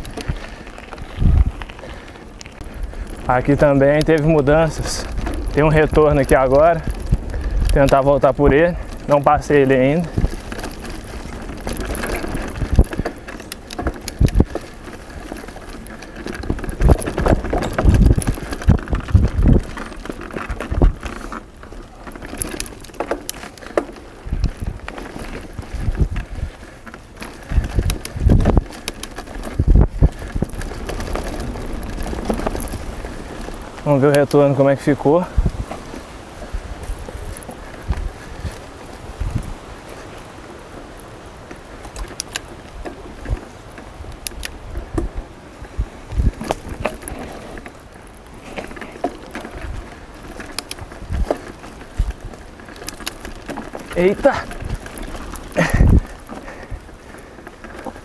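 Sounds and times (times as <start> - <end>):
bike rattling and clicking: 0.0 - 58.0
bike tyres on dirt and leaves: 0.0 - 58.0
wind on microphone: 0.0 - 58.0
heavy thuds over bumps: 53.2 - 57.2.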